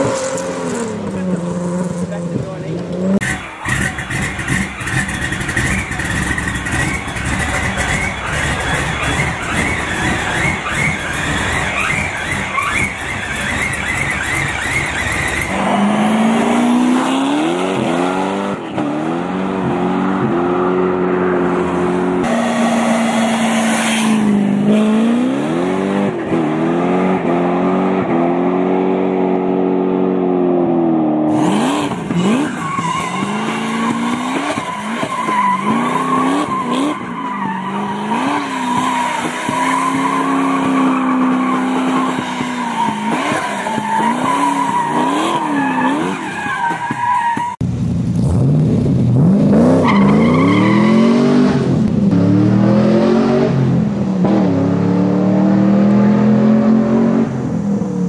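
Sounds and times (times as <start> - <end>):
car engine revving: 0.0 - 58.0
tyres squealing: 3.2 - 17.4, 31.3 - 47.6.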